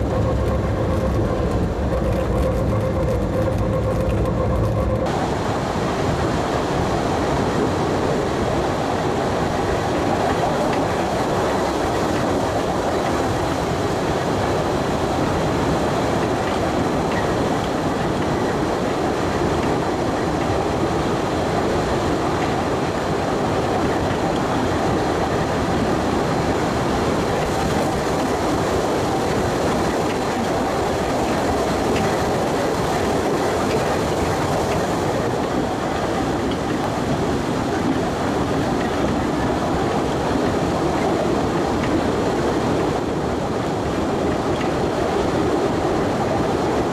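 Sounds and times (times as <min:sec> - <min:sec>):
train wheels rumbling on rails: 0:00.0 - 0:46.9.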